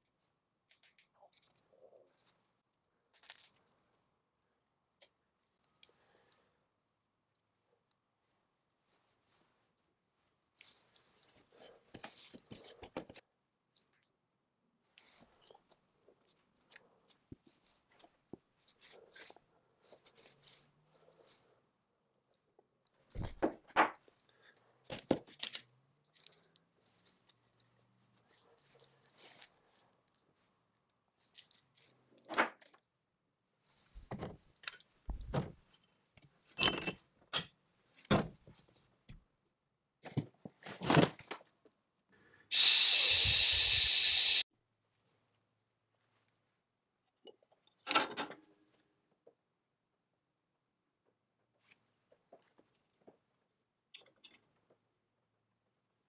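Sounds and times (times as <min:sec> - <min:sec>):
loud steady hiss: 0:42.5 - 0:44.4.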